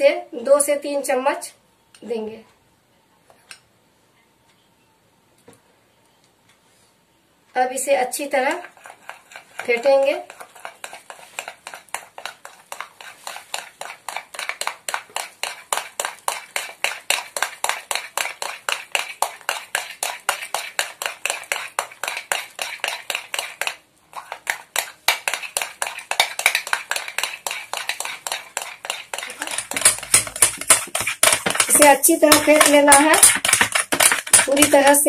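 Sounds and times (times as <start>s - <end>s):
batter beaten in glass bowl: 8.1s - 35.0s.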